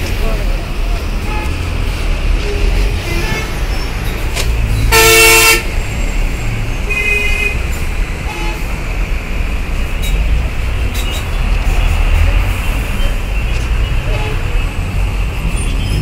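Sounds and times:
bus and truck engines in traffic: 0.0 - 16.0
vehicle horn blast: 4.9 - 5.7.

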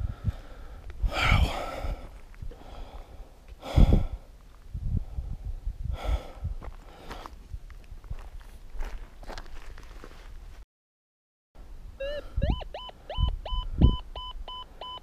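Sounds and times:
man breathing heavily: 0.0 - 7.6.

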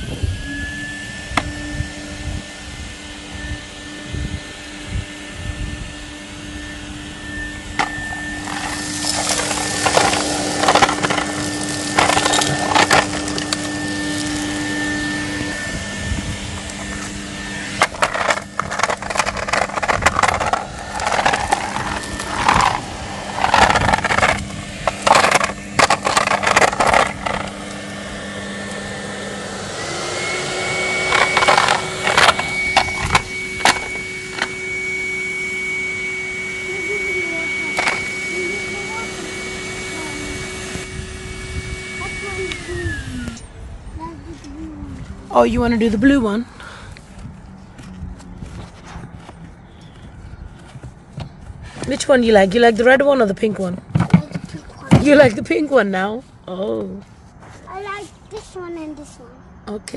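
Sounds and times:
vacuum cleaner humming: 0.0 - 56.9
grit clattering through hose: 8.4 - 14.4, 17.8 - 27.5.

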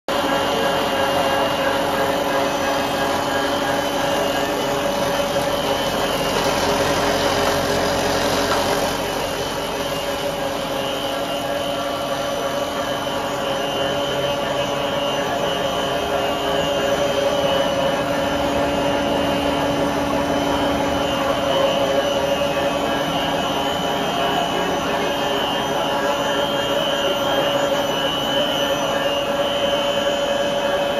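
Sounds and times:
machine hum with high whine: 0.1 - 30.9.

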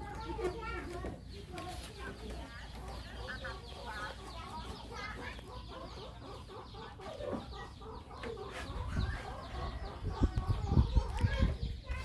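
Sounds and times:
chirpy animal calls: 0.0 - 12.0.

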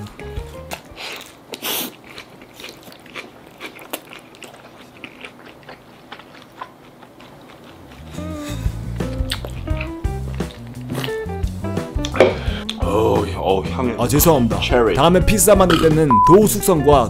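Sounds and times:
person chewing food: 0.4 - 12.8.

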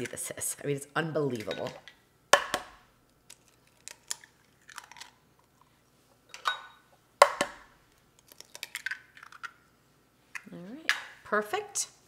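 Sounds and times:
eggshells cracking: 3.2 - 5.2, 7.2 - 9.6.

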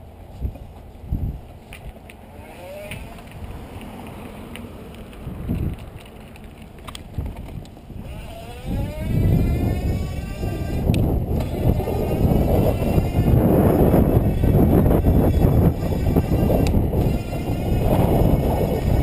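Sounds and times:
wind on microphone: 0.3 - 4.1, 5.0 - 19.0
electric bike motor whining: 2.3 - 19.0
sharp clicks: 16.6 - 17.2.

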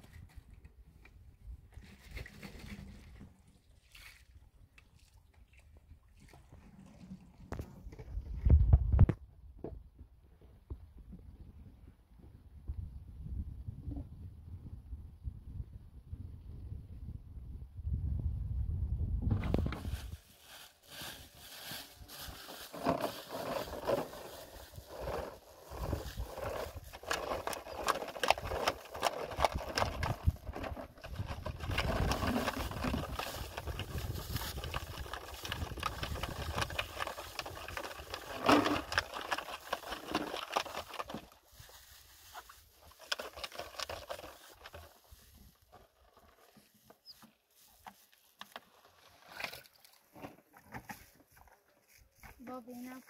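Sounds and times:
plastic bottles knocking and clicking: 24.9 - 41.4, 42.9 - 44.8.

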